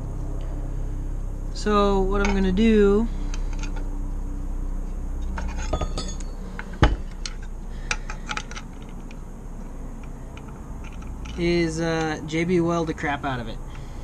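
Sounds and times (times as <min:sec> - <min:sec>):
light metallic clinks and taps: 0:05.3 - 0:09.2.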